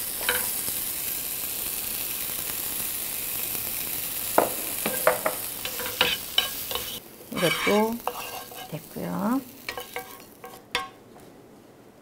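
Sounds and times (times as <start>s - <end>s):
vegetables sizzling in a frying pan: 0.0s - 11.1s
wooden spoon knocking on pan: 4.4s - 6.9s, 9.7s - 11.0s.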